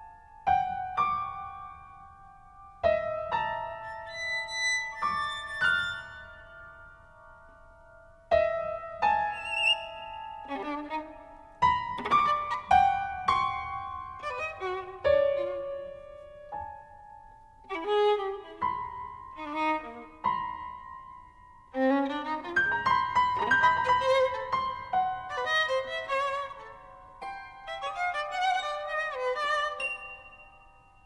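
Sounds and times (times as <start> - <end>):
violin background music: 9.2 - 16.5, 17.6 - 20.7, 21.7 - 30.5.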